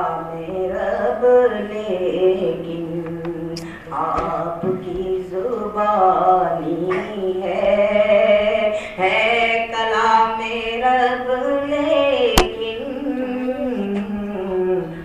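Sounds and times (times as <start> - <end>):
sharp click: 12.4 - 12.7.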